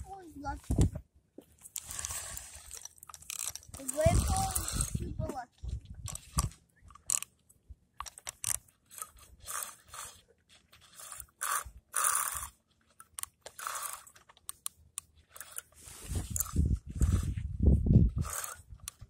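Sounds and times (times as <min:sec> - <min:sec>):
fishing reel cranking rasps: 0:01.6 - 0:05.2, 0:06.1 - 0:07.3, 0:08.0 - 0:10.2, 0:10.8 - 0:17.4, 0:18.1 - 0:19.0.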